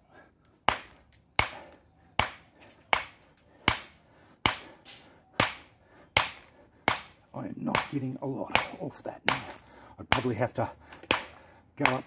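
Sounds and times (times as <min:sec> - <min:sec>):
hammer striking rock: 0:00.7 - 0:01.6, 0:02.2 - 0:04.8, 0:05.4 - 0:10.4, 0:11.0 - 0:12.0.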